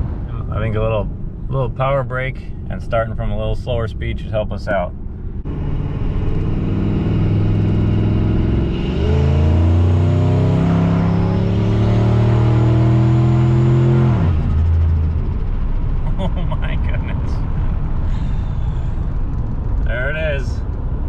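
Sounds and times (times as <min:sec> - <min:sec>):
truck engine accelerating hard: 0:05.4 - 0:17.9.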